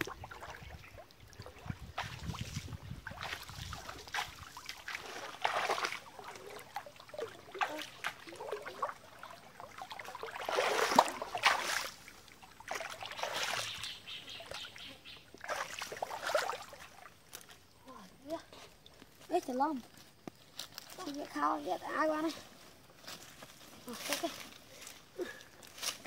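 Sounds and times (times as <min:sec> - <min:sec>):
water splashing in stream: 0:00.0 - 0:17.9.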